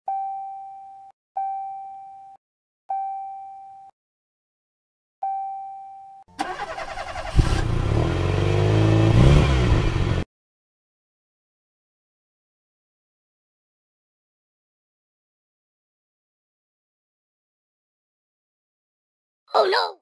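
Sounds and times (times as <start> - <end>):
motorcycle engine starting and revving: 6.4 - 10.3.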